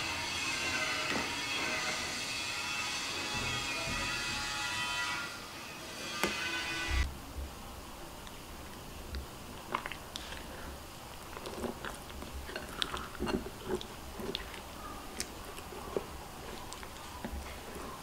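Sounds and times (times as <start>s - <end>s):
spatula stirring wet batter: 8.2s - 18.0s.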